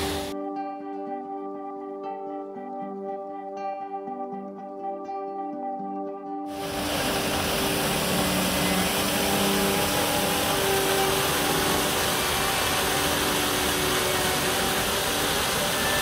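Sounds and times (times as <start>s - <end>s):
waterfall splashing into pool: 0.0s - 0.3s, 6.5s - 16.0s.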